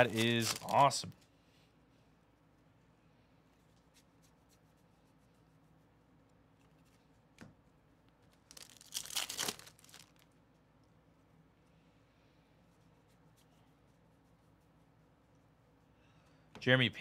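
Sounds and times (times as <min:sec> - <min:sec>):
cards being thumbed through: 0:00.0 - 0:00.8
foil wrapper tearing and crinkling: 0:00.0 - 0:01.0, 0:08.4 - 0:10.3.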